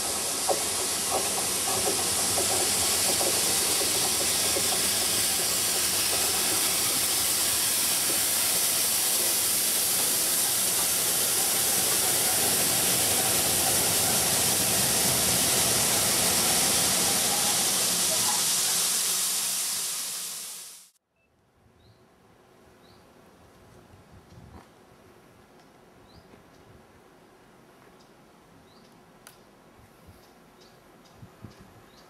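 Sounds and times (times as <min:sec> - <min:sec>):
steam train rushing past: 0:00.0 - 0:21.0.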